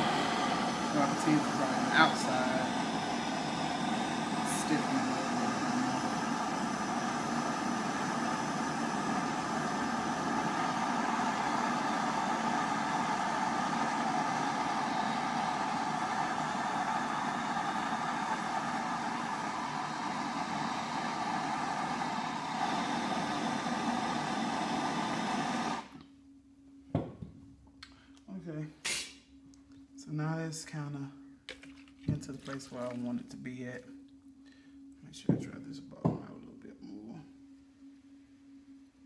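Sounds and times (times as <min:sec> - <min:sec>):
gas blowtorch hissing: 0:00.0 - 0:26.0.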